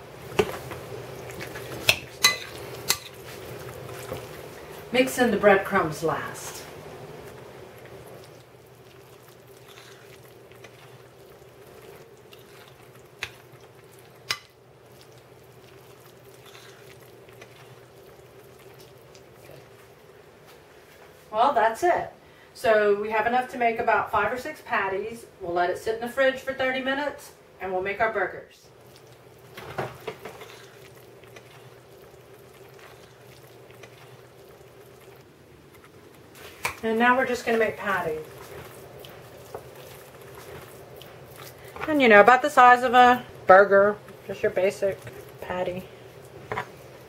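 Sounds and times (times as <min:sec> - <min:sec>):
faint steady two-tone hum: 0:00.0 - 0:47.0
fork scraping mushy mixture: 0:00.5 - 0:04.5, 0:07.2 - 0:19.8, 0:28.8 - 0:42.2, 0:44.3 - 0:46.8
fork clinking against bowl: 0:01.9 - 0:03.2.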